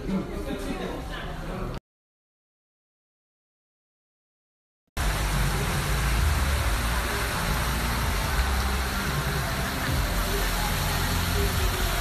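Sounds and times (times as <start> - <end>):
fountain water jets splashing: 5.0 - 12.0.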